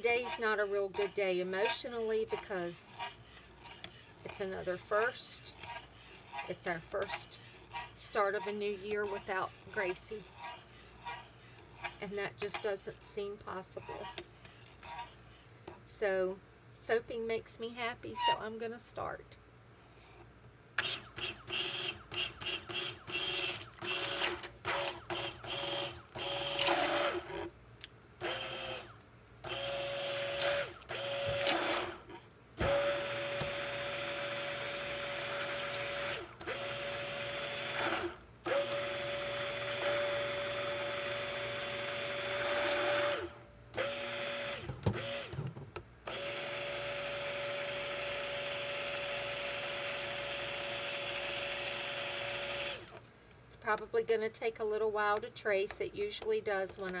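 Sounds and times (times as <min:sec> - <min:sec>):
stick blender running: 0:00.0 - 0:15.2, 0:20.8 - 0:27.5, 0:28.2 - 0:45.4, 0:46.0 - 0:53.0.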